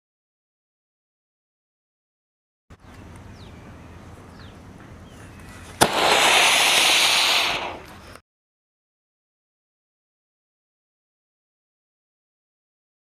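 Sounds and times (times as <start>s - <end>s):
firework crack: 5.8s - 8.2s
firework hissing: 5.8s - 8.2s.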